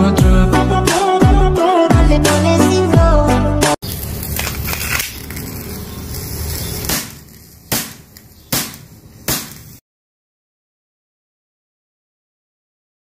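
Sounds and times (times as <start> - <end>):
rustling handling noise: 3.8 - 9.8.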